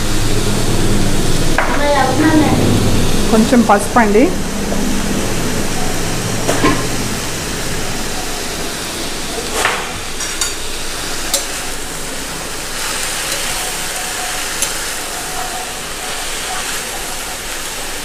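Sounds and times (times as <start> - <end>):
leaves sizzling in hot oil: 5.0 - 18.0.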